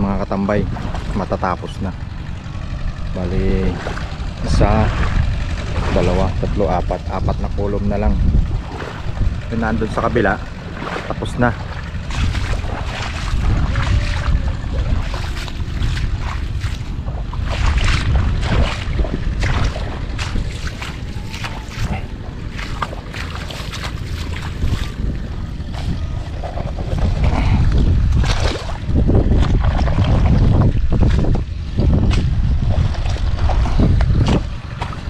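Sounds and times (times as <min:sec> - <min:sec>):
wind rumble on microphone: 0:00.0 - 0:35.0
water splashing in mud: 0:02.2 - 0:07.5, 0:08.3 - 0:35.0.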